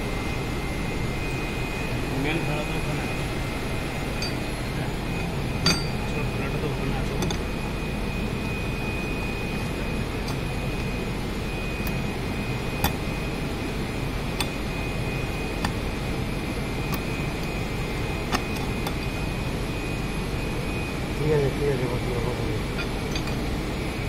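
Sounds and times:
faint high whine: 0.0s - 24.0s
workshop noise: 5.6s - 6.2s.

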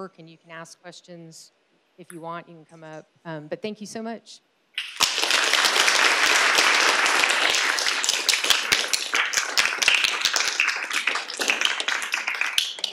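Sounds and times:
audience applauding: 4.8s - 12.9s.

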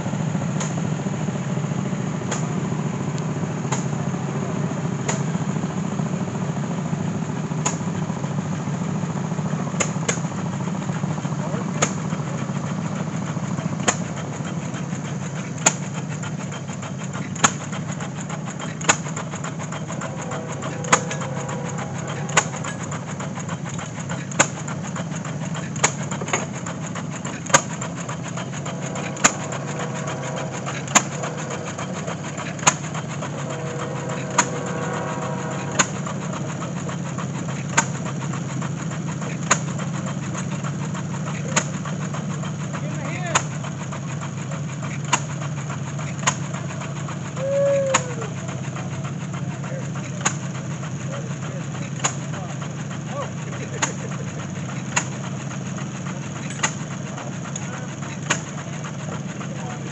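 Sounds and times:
steady low drone: 0.0s - 42.9s
flywheel engine firing bangs: 0.0s - 59.9s.

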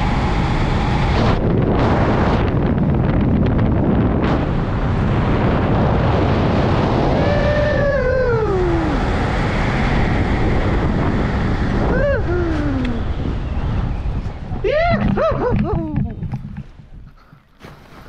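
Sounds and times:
strong wind on microphone: 0.0s - 17.3s
person calling out: 11.9s - 13.0s, 14.6s - 16.2s.

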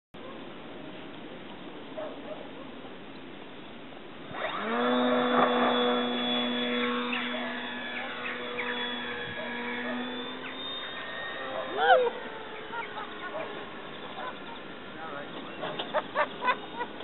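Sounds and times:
model plane motor whine: 4.2s - 17.0s.

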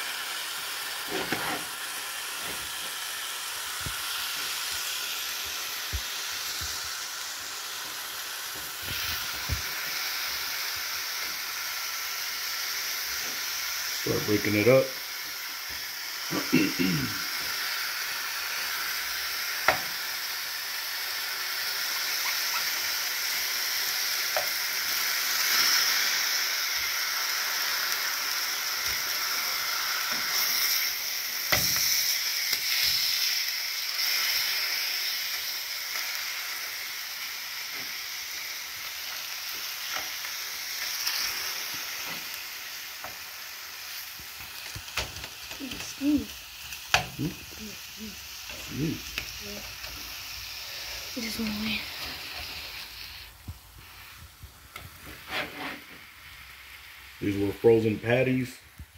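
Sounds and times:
meat sizzling in a frying pan: 0.0s - 58.9s
spatula scraping meat: 55.0s - 56.0s.

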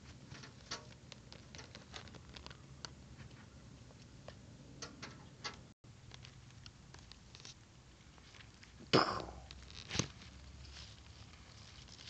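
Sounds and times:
small clicks and ticks: 0.2s - 3.0s, 4.3s - 7.6s.

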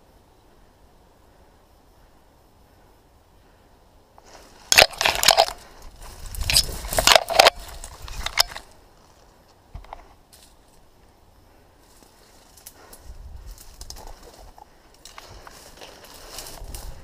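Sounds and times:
twigs and leaves crunching: 4.2s - 11.2s, 11.8s - 17.0s.

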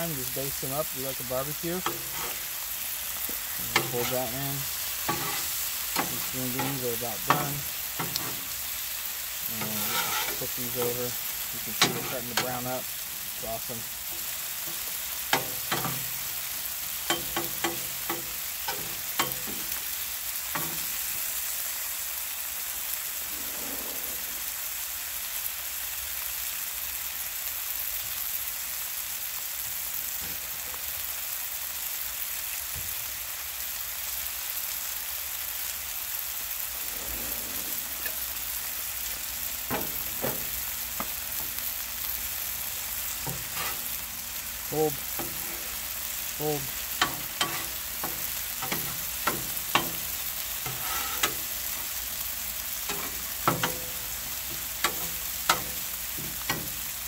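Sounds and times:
food sizzling on a griddle: 0.0s - 57.0s
metal spatula scraping griddle: 0.2s - 21.4s, 36.8s - 41.6s, 42.8s - 57.0s.

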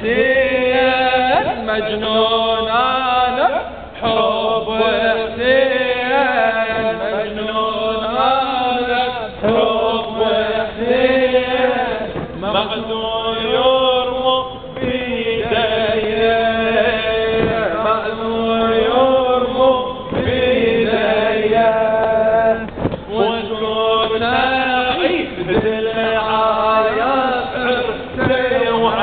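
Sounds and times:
man chanting a lament: 0.0s - 29.0s
dull thumps: 6.2s - 13.0s, 14.7s - 29.0s.

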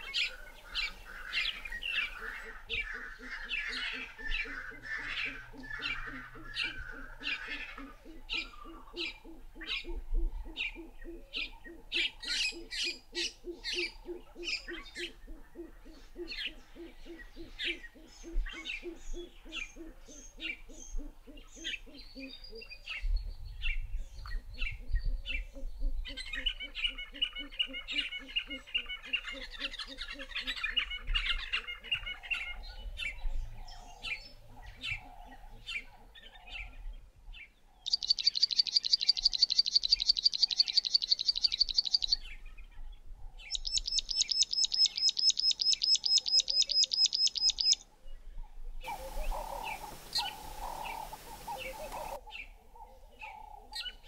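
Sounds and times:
birds chirping and whistling: 0.0s - 9.9s, 37.9s - 42.4s, 43.4s - 47.8s, 48.9s - 52.2s
bird fast chipping song: 37.8s - 42.3s, 43.5s - 47.8s, 48.9s - 52.2s
low rapid hooting: 48.9s - 52.2s.

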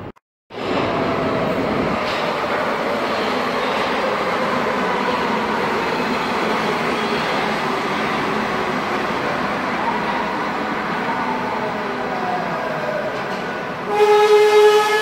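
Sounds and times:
train wheels rumbling on rails: 0.5s - 10.3s.

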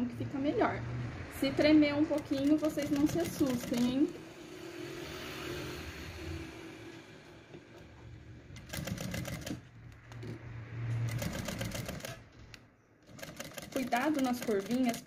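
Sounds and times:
sewing machine stitching: 2.1s - 4.2s, 8.6s - 9.7s, 11.0s - 12.3s, 13.0s - 15.0s.

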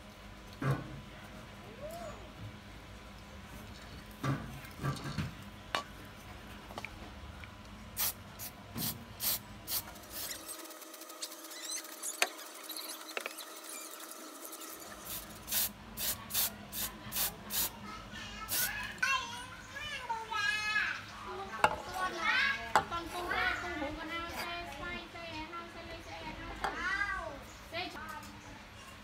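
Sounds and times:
spray paint can spraying: 8.0s - 17.7s, 18.5s - 18.8s
short squeaks: 10.1s - 14.9s.

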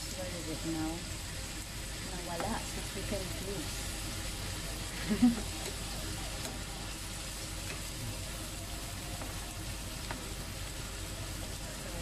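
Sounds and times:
vegetables sizzling in a pan: 0.0s - 12.0s
spatula tapping a pan: 2.4s - 2.6s, 9.1s - 10.4s.

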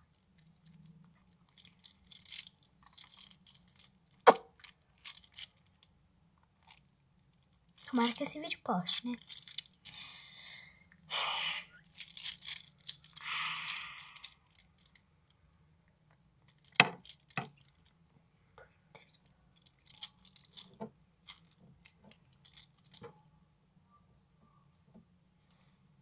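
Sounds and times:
rustling: 0.0s - 5.9s, 11.8s - 15.0s.

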